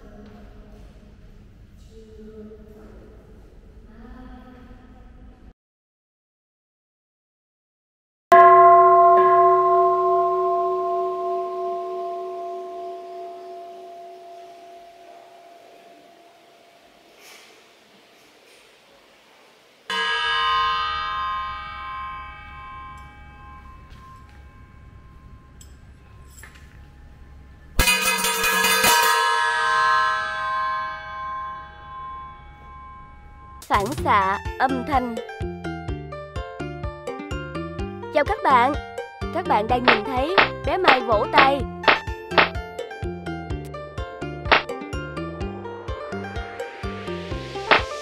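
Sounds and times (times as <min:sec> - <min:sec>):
metal singing bowl ringing: 0:08.3 - 0:17.0, 0:19.9 - 0:33.6
metal struck with rods: 0:27.8 - 0:30.4, 0:39.7 - 0:42.6, 0:44.5 - 0:44.7, 0:47.7 - 0:48.0.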